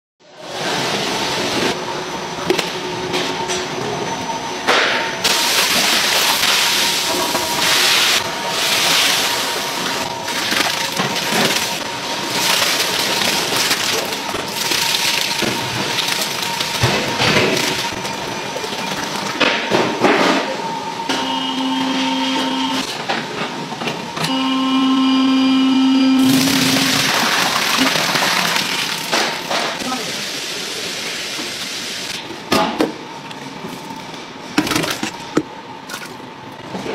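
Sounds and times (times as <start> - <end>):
low machine hum: 1.7 - 29.7.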